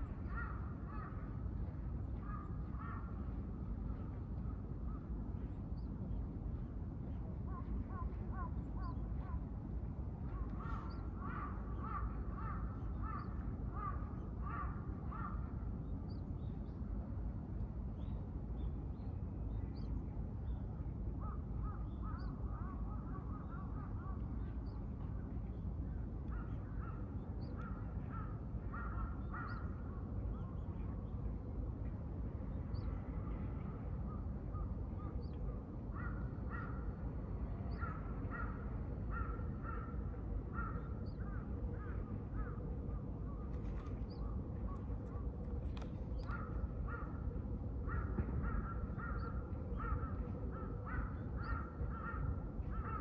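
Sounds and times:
steady low rumble: 0.0 - 53.0.

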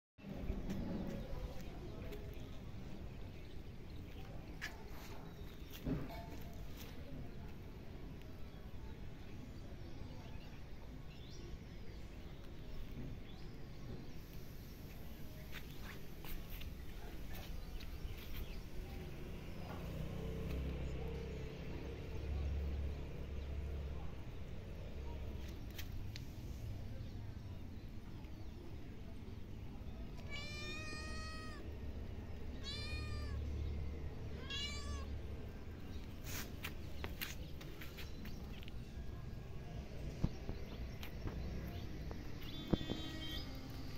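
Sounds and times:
cat meowing: 30.2 - 31.6, 32.6 - 33.4, 34.4 - 35.1.

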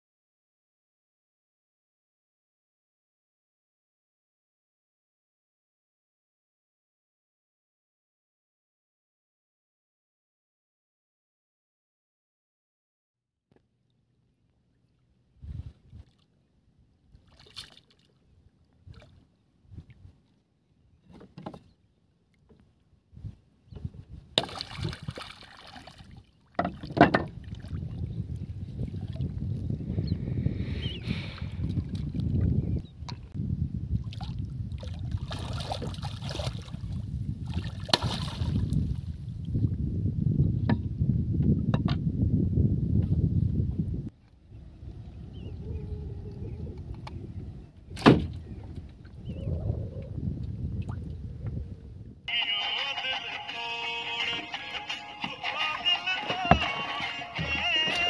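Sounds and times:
wind rumble on microphone: 15.3 - 16.2, 18.4 - 20.2, 23.0 - 25.2, 26.8 - 52.3
water slapping wooden boat hull: 17.1 - 20.1, 23.7 - 28.0, 34.0 - 39.2, 47.9 - 49.2
bright water splash: 24.4 - 26.2
fish thrashing and splashing: 24.4 - 26.2, 34.2 - 36.9, 37.5 - 38.7.

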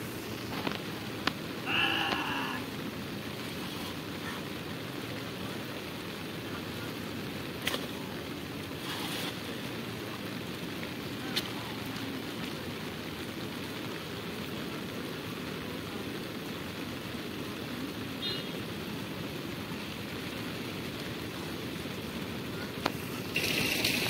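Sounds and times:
rain: 0.0 - 24.0
wind: 0.0 - 24.0
cast net slapping onto water: 7.6 - 8.0.

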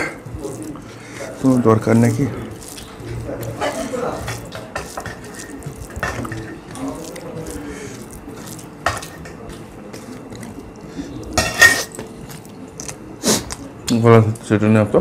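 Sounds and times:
spoons clinking on metal plates: 11.4 - 12.0.

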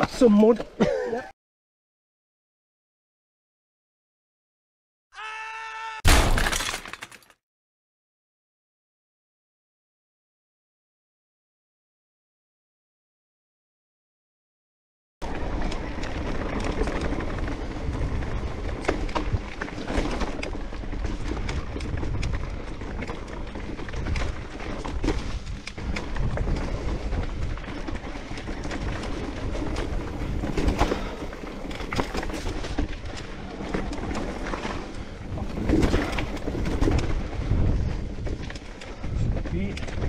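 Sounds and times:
bike knocking and rattling: 15.2 - 40.0
bike tyres on a trail: 15.2 - 40.0
wind rumbling on microphone: 15.2 - 40.0.

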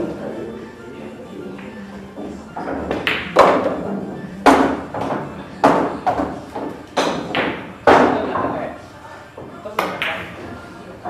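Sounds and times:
billiard balls clicking: 1.5 - 8.6.

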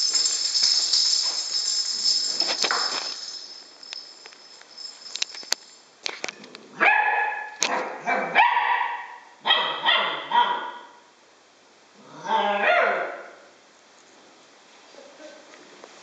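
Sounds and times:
bell ball jingling on tile: 0.0 - 6.0
puppy barking: 6.8 - 11.0, 12.3 - 13.4.

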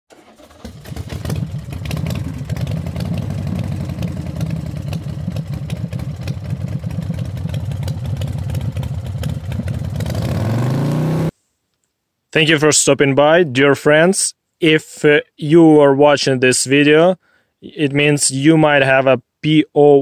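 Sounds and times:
engine running with clattery ticking: 0.1 - 10.6.

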